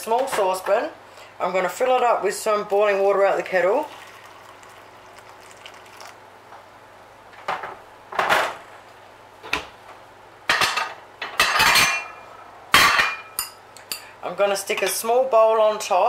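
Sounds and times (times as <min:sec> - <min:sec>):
pots and dishes clattering: 0:10.5 - 0:12.2, 0:12.8 - 0:13.6.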